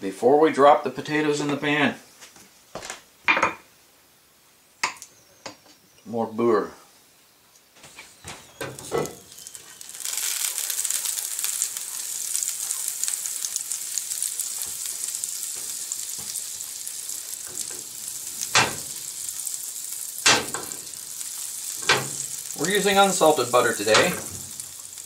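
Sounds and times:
butter sizzling in a skillet: 8.4s - 25.0s.

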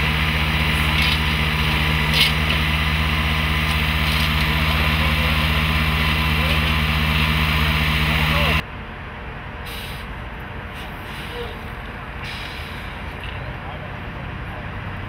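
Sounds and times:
track maintenance machine engine running: 0.0s - 9.5s.

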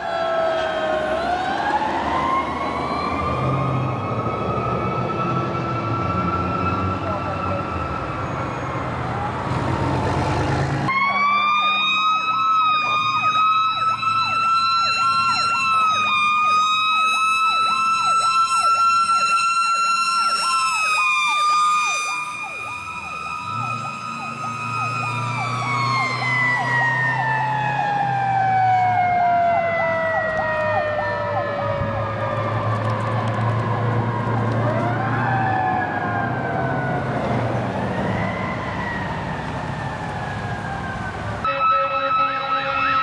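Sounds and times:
mechanical siren wailing: 0.0s - 9.5s, 10.9s - 43.0s
diesel truck engine: 0.8s - 41.5s
electronic siren yelping: 10.9s - 43.0s.

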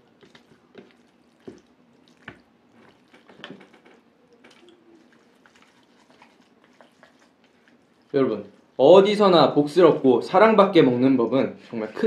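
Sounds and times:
person eating noodles: 0.0s - 8.8s.

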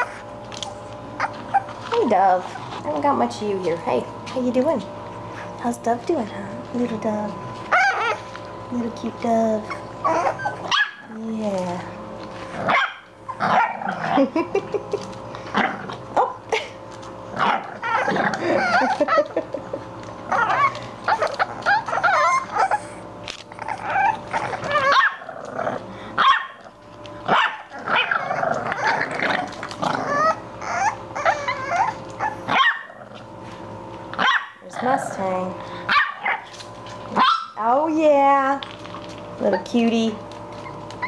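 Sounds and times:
puppies barking and yipping: 0.0s - 4.3s, 7.5s - 8.5s, 9.6s - 11.1s, 12.2s - 34.6s, 35.8s - 37.8s, 38.7s - 41.0s.

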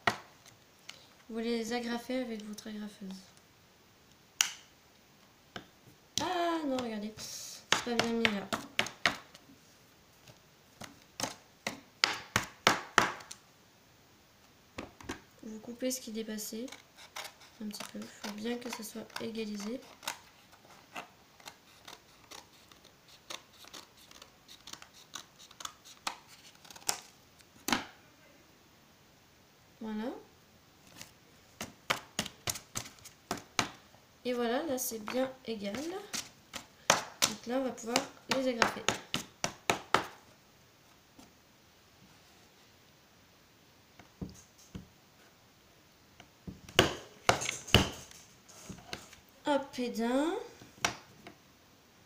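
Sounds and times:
scissors snipping paper: 16.6s - 27.0s.

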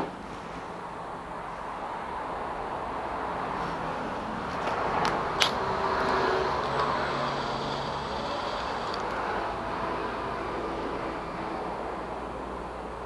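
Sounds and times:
steady background hiss: 0.0s - 13.0s
cordless driver running: 4.5s - 11.0s.

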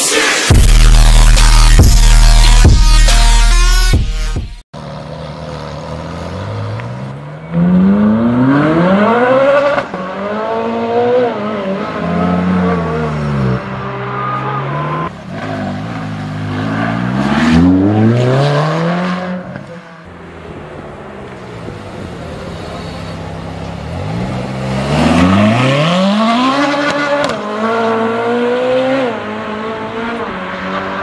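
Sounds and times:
car engine accelerating hard: 20.4s - 31.0s.

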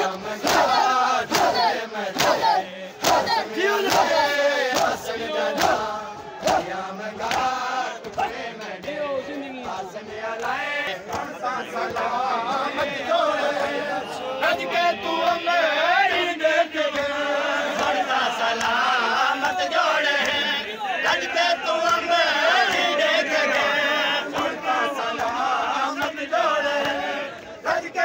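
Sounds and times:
hands slapping chests: 0.0s - 12.9s, 16.9s - 18.9s, 21.8s - 27.6s
crowd of men chanting: 0.0s - 28.0s.

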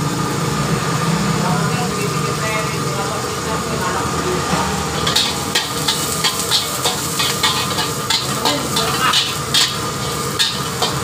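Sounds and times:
food sizzling in oil: 0.0s - 11.0s
low hum: 3.7s - 7.8s
metal spatula scraping a wok: 4.4s - 11.0s.

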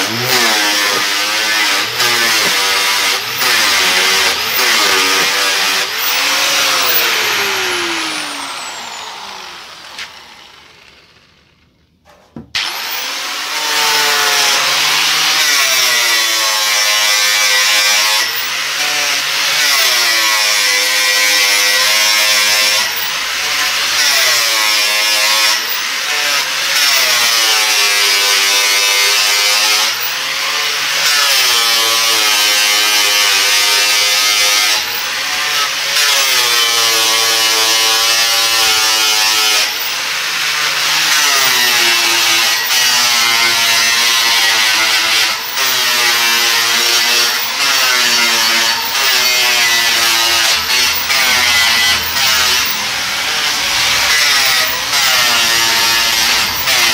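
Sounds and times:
angle grinder whining: 0.0s - 56.9s.

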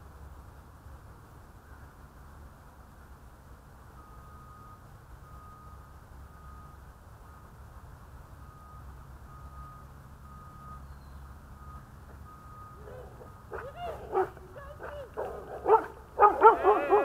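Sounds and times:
faint beeps: 4.0s - 7.6s, 8.4s - 15.1s.

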